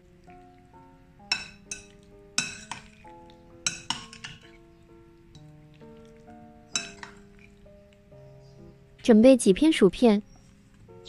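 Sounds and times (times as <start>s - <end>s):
soft background music: 0.0s - 11.0s
metal spoon clinking on glass bowl: 1.3s - 3.0s, 3.6s - 4.6s, 6.7s - 7.5s.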